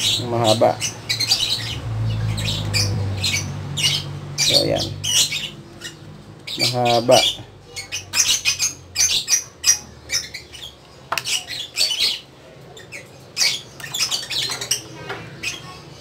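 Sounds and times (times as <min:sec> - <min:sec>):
birds squawking and chirping: 0:00.0 - 0:16.0.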